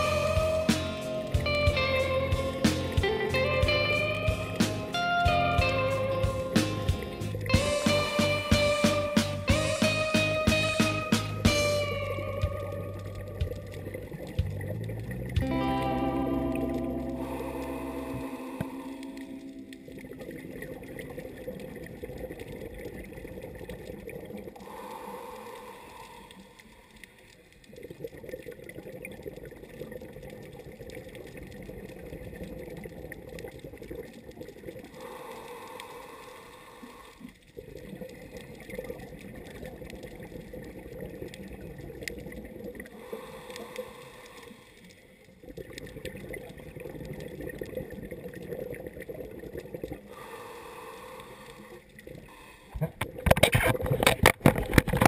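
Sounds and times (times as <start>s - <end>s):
gurgling exhaled bubbles: 0.0s - 55.0s
regulator inhale hiss: 17.2s - 19.5s, 24.6s - 27.4s, 35.0s - 37.4s, 42.9s - 45.2s, 50.1s - 52.8s.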